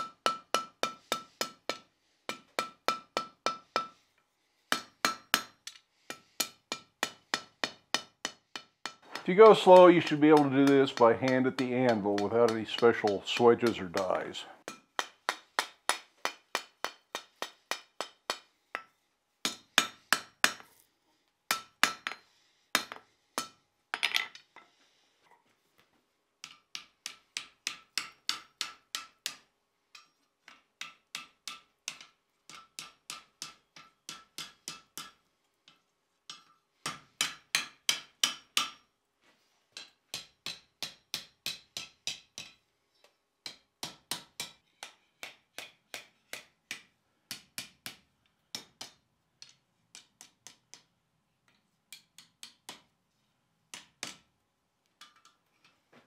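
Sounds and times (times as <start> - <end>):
hammer striking steel on anvil: 0.0 - 4.0, 4.7 - 20.7, 21.5 - 22.2, 22.8 - 24.1, 26.4 - 38.9, 39.8 - 42.6, 43.4 - 50.9.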